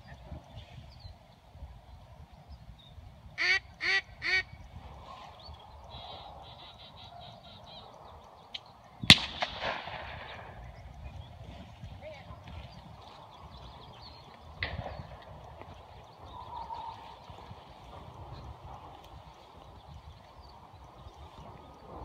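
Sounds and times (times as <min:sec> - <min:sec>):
duck call quacks: 0:03.4 - 0:04.4
gunshot: 0:09.1 - 0:10.6.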